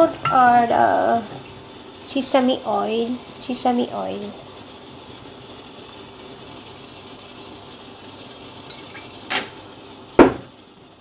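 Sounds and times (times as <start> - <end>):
steamer pot simmering hiss: 0.0 - 11.0
kitchenware knock: 10.2 - 10.5.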